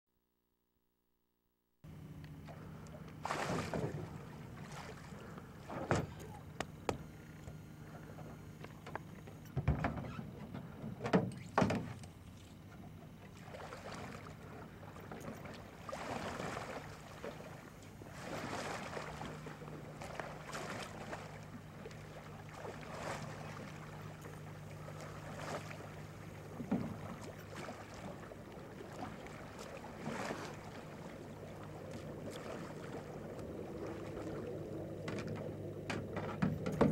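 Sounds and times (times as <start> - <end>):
paddle splashing water: 2.4 - 6.6, 13.2 - 36.9
knocks against boat: 3.4 - 4.2, 5.7 - 7.6, 8.6 - 12.1, 26.5 - 27.3, 35.1 - 36.9.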